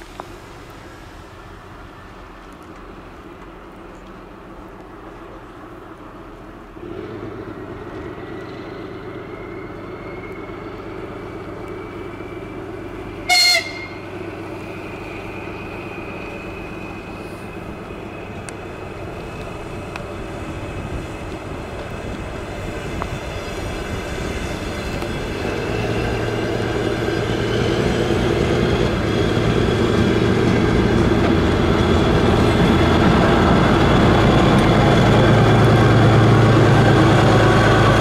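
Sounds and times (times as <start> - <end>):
diesel engine humming: 5.5 - 38.0
train horn toot: 13.2 - 14.2.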